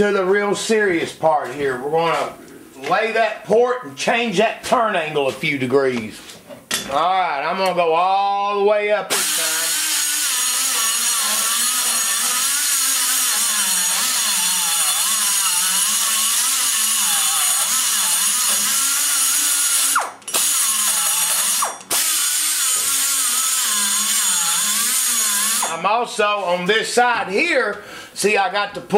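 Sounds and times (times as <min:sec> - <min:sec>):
die grinder whining: 0:09.1 - 0:25.8.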